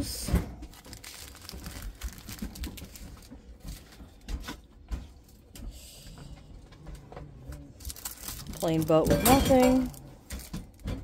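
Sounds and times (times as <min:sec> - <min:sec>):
plastic packets rustling on table: 0:00.5 - 0:04.5, 0:07.6 - 0:11.0.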